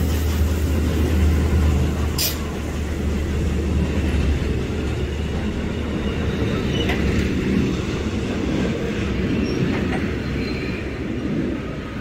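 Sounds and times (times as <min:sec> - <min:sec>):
sharp steam hiss: 0:00.0 - 0:02.8
steam train rumble: 0:00.0 - 0:12.0.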